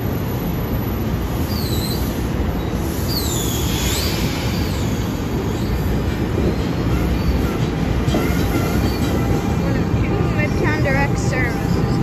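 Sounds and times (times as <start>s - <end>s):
train wheels rumbling on rail: 0.0s - 12.0s
high wheel squeals: 1.4s - 9.4s.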